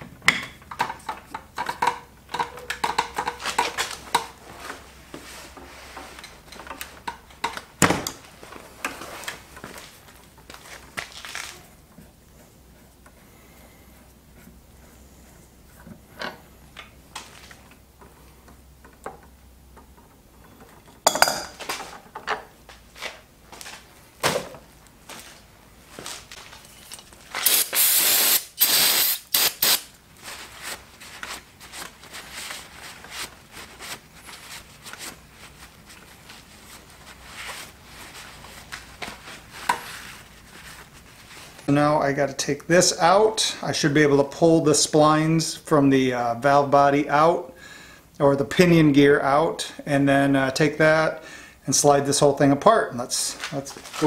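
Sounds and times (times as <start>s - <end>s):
clinks and taps of metal tools: 0.3s - 4.4s, 20.5s - 22.4s
aerosol spray can hissing: 27.4s - 29.9s.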